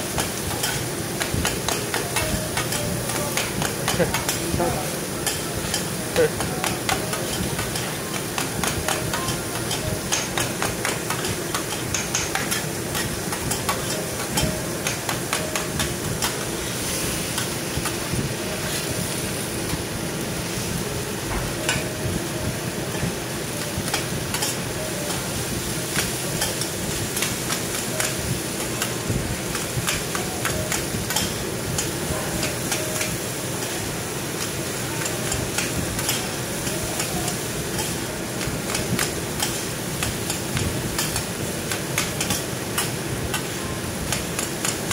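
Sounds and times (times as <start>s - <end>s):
frying sizzle: 0.0s - 44.9s
metal spatulas clacking on griddle: 0.2s - 4.5s, 5.2s - 16.5s, 23.6s - 25.3s, 25.9s - 33.7s, 34.4s - 38.0s, 38.6s - 40.4s, 41.0s - 44.9s.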